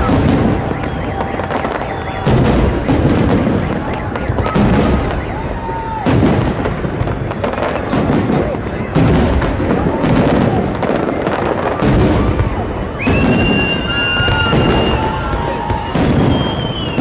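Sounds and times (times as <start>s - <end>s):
high firework whistle: 0.0s - 6.4s, 9.9s - 17.0s
fireworks bursting with crackle: 0.0s - 17.0s.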